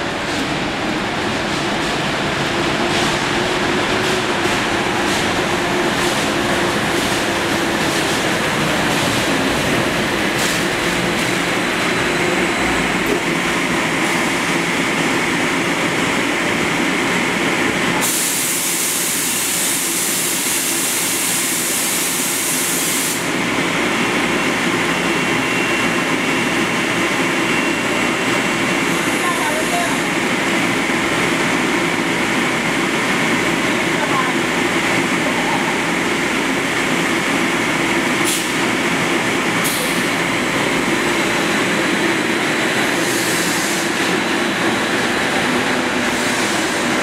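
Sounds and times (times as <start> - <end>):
electric trolleybus running: 0.0 - 47.0
loud hiss of air: 18.0 - 23.4, 38.2 - 38.7, 39.6 - 40.2, 42.4 - 44.9, 45.6 - 47.0.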